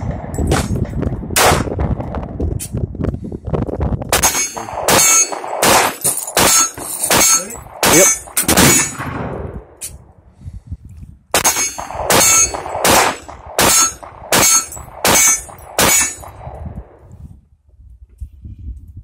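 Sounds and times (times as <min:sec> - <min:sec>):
rifle shot echoing: 0:00.0 - 0:02.2, 0:04.1 - 0:09.9, 0:11.3 - 0:17.1
pistol shots: 0:04.1 - 0:09.4, 0:11.3 - 0:17.0.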